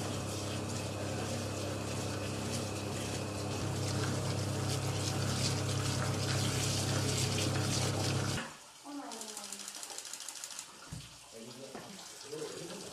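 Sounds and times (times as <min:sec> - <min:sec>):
electric motor humming: 0:00.0 - 0:08.4
flour sifting through sieve: 0:00.0 - 0:08.4.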